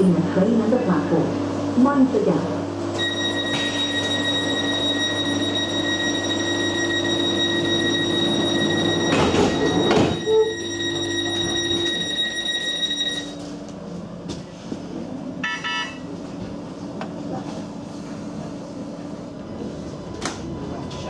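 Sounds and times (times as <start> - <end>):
short pitched beep: 3.0 - 13.4
steady high tone: 3.0 - 13.5.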